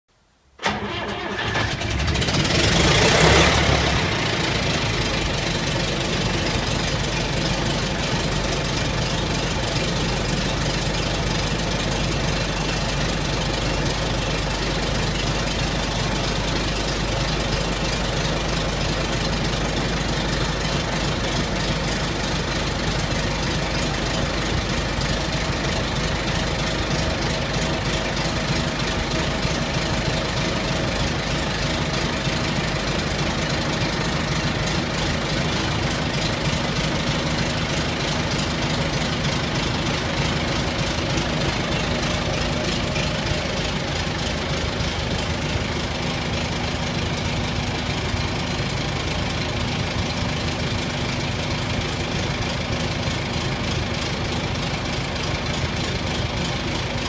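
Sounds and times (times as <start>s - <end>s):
combine harvester engine starting: 0.6s - 57.0s.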